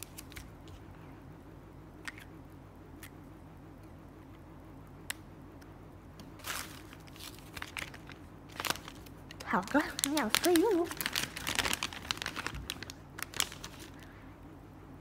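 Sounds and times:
bubble wrap crinkling: 0:06.4 - 0:14.1.

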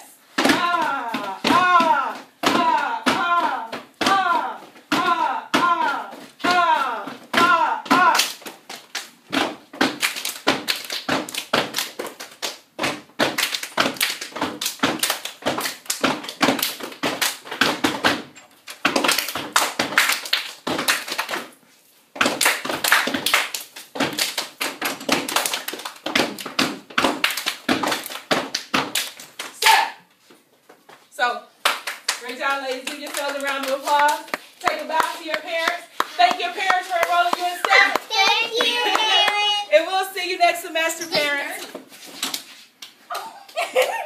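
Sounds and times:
hand claps and body slaps: 0:07.3 - 0:21.6, 0:22.2 - 0:29.8, 0:31.6 - 0:39.6.

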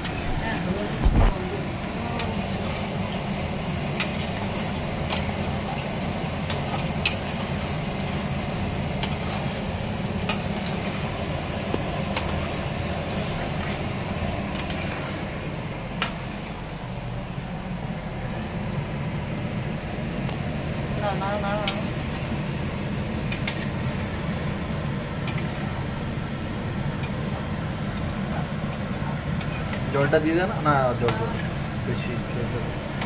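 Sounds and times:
low mechanical hum: 0:00.0 - 0:33.0
utensils clinking on pot: 0:10.2 - 0:11.2.

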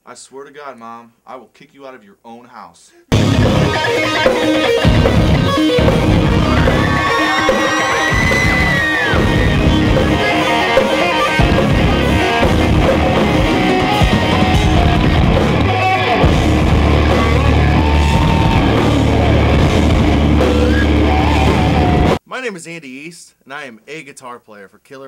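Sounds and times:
low bass note: 0:03.1 - 0:03.7, 0:04.9 - 0:06.9, 0:14.4 - 0:22.2
rock music with electric guitars: 0:03.1 - 0:22.2.

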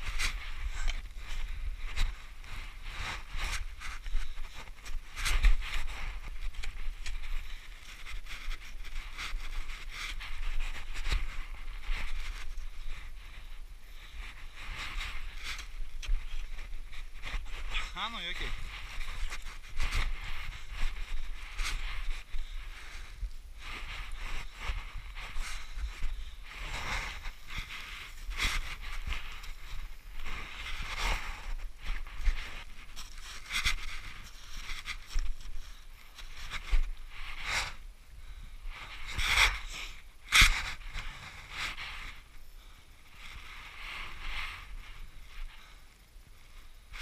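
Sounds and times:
wind rumble on microphone: 0:00.0 - 0:47.0
boots crunching through snow: 0:14.4 - 0:37.8.

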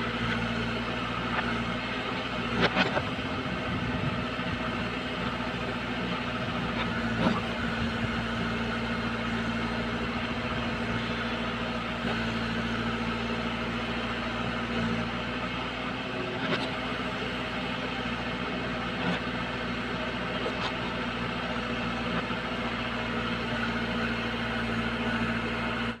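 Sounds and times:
backhoe digging soil: 0:00.0 - 0:26.0
diesel engine running: 0:00.0 - 0:26.0.

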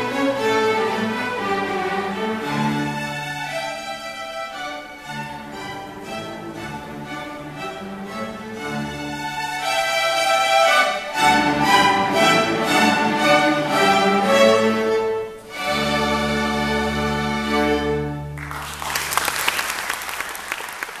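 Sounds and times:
string orchestra playing chords: 0:00.0 - 0:19.2
audience applause: 0:18.4 - 0:21.0.

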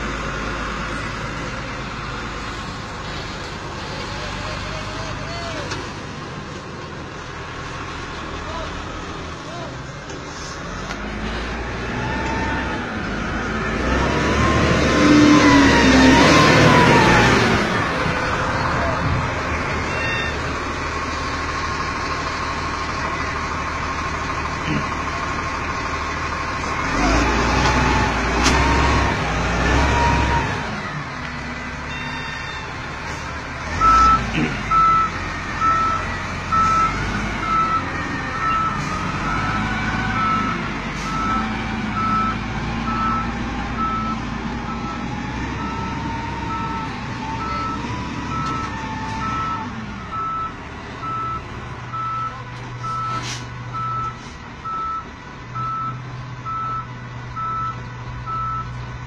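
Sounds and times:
heavy diesel engines revving: 0:00.0 - 0:59.0
reversing alarm beeping: 0:19.9 - 0:20.5, 0:31.8 - 0:32.8, 0:33.8 - 0:58.8.

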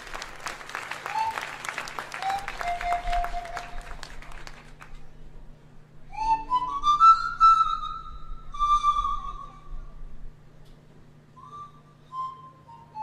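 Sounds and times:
applause: 0:00.0 - 0:05.2
pan flute solo: 0:00.9 - 0:04.4, 0:06.0 - 0:10.3, 0:11.3 - 0:13.0.

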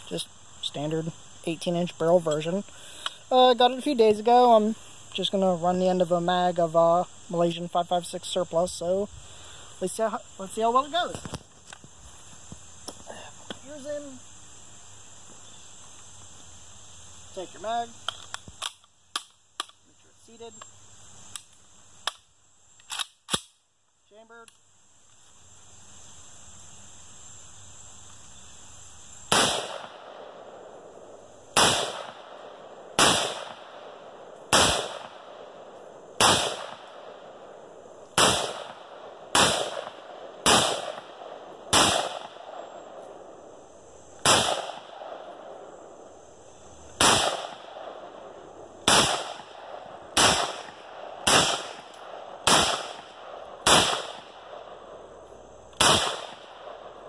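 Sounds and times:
rifle shots echoing: 0:29.3 - 0:30.8, 0:31.5 - 0:43.4, 0:44.2 - 0:45.7, 0:47.0 - 0:55.1, 0:55.8 - 0:57.0.

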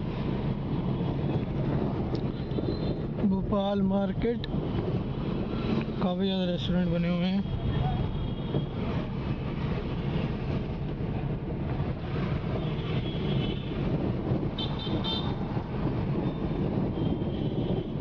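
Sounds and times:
car engine and road rumble: 0:00.0 - 0:18.0
vehicle horns tooting: 0:14.6 - 0:15.4.

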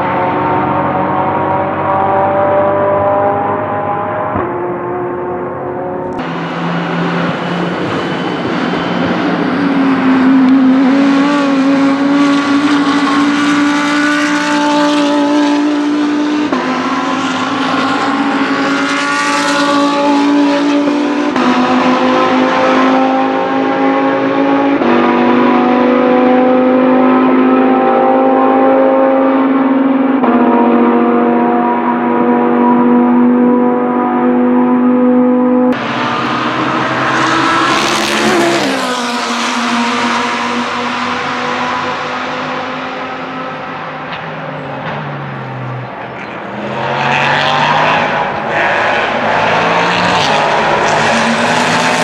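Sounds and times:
race car engines at high revs: 0:00.0 - 0:52.0
car passing close: 0:34.7 - 0:52.0.

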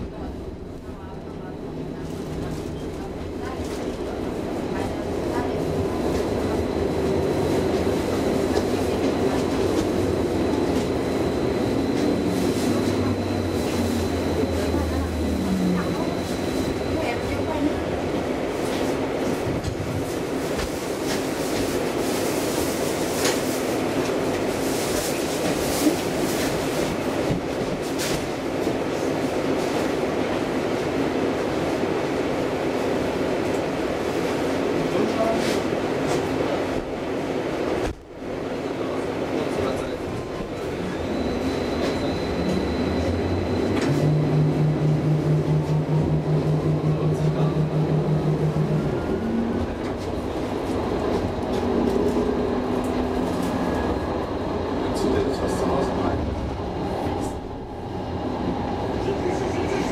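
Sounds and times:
tram wheels rumbling: 0:00.0 - 0:59.9
faint high whine: 0:40.5 - 0:49.8.

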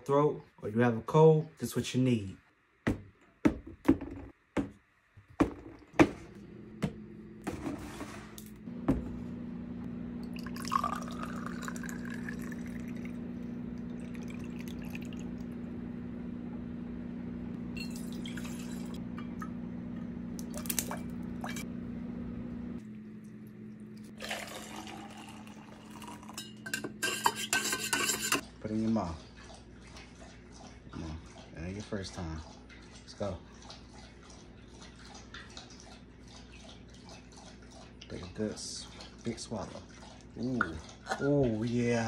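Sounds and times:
bottles knocking on tiled counter: 0:02.9 - 0:04.8, 0:05.4 - 0:06.2
steady low hum: 0:05.9 - 0:28.4
liquid pouring into glass: 0:10.2 - 0:15.6, 0:17.7 - 0:19.5, 0:24.1 - 0:26.8
water pouring into metal tumbler: 0:10.3 - 0:13.2, 0:13.8 - 0:15.4, 0:24.1 - 0:26.4.

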